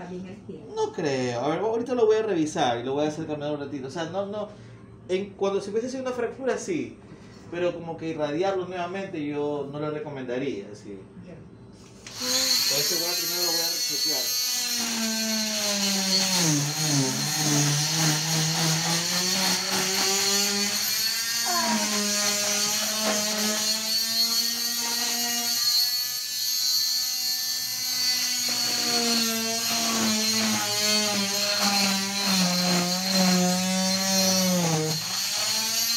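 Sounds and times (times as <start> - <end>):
cast saw motor whine: 12.0 - 35.9.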